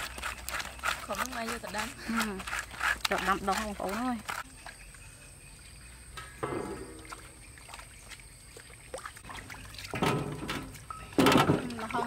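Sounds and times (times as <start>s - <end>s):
water dribbling and sloshing: 0.0s - 4.8s, 6.2s - 12.0s
knocks on metal basin: 6.2s - 7.0s, 10.0s - 11.8s.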